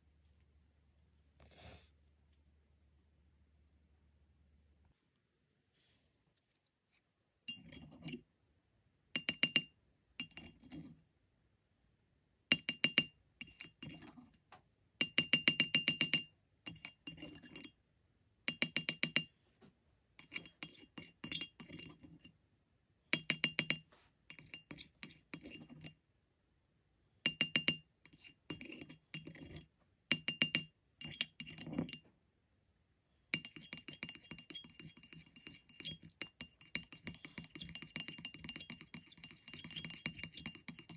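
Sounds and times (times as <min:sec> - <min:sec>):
glass rod clinking on ceramic: 0:09.2 - 0:10.5, 0:12.5 - 0:13.7, 0:15.0 - 0:17.7, 0:18.5 - 0:19.3, 0:20.2 - 0:22.2, 0:23.2 - 0:25.9, 0:27.3 - 0:32.0, 0:33.4 - 0:40.9.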